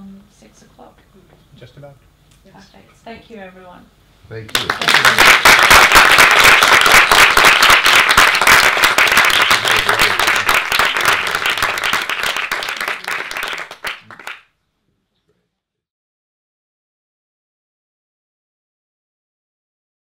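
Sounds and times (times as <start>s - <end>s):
audience applauding: 4.5s - 14.5s.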